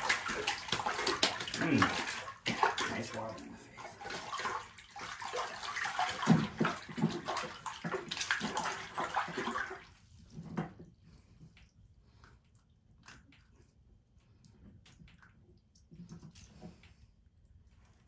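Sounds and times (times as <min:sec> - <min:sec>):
water dripping: 0:00.0 - 0:10.2, 0:11.1 - 0:18.0
fish thrashing in water: 0:00.0 - 0:10.3
water splashing and sloshing: 0:00.0 - 0:18.0.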